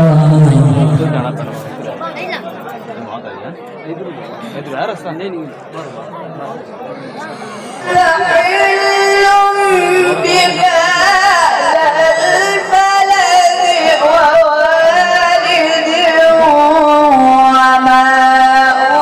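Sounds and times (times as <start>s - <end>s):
man reciting melodically: 0.0s - 2.0s, 7.6s - 19.0s.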